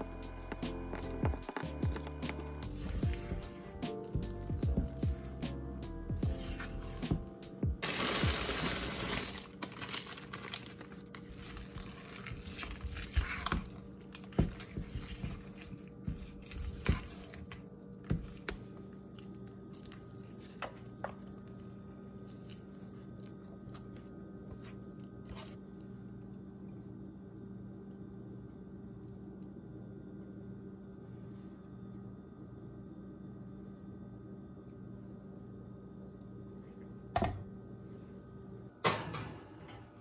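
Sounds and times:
sticky batter squelching: 0:10.7 - 0:25.6.

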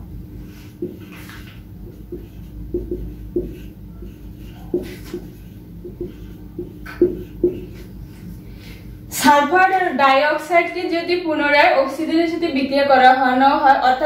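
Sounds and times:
faint steady hum: 0:00.0 - 0:14.0
marker squeaking on whiteboard: 0:00.8 - 0:07.9.

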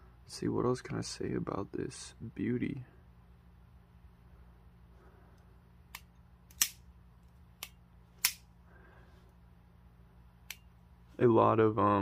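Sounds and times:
knife mechanism snapping: 0:05.9 - 0:06.8, 0:07.6 - 0:08.4.

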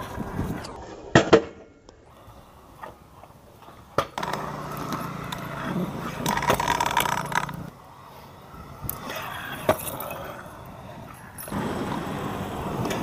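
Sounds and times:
scooter wheels rolling on concrete: 0:00.0 - 0:01.4, 0:02.0 - 0:13.0
scooter landing clack: 0:01.1 - 0:01.7, 0:03.9 - 0:07.7.

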